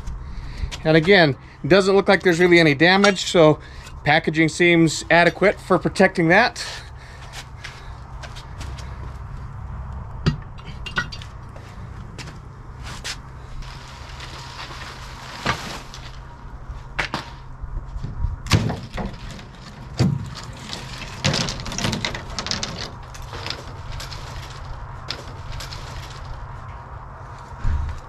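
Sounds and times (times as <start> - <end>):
steady low hum: 0.0 - 28.0
wooden crate being taken apart: 13.6 - 16.4, 18.5 - 26.4.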